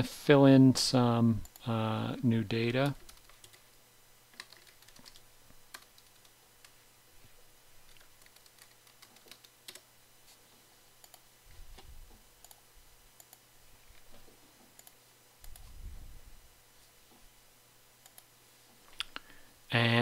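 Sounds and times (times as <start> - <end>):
computer keyboard typing: 2.8 - 3.7, 4.3 - 6.8, 7.9 - 9.9.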